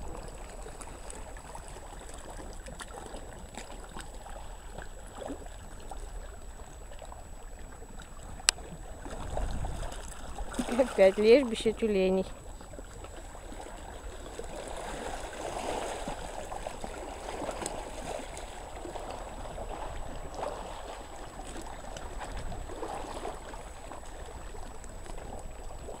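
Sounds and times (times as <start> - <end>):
small waves washing over pebbles: 8.0 - 26.0.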